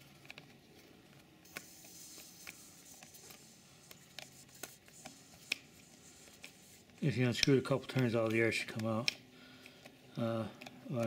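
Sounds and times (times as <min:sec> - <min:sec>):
air hissing from tire valve: 0:01.5 - 0:03.9.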